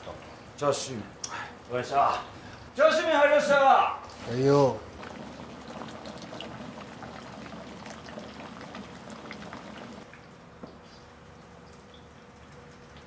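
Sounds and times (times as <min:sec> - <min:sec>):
broth boiling and bubbling: 0:04.5 - 0:13.0.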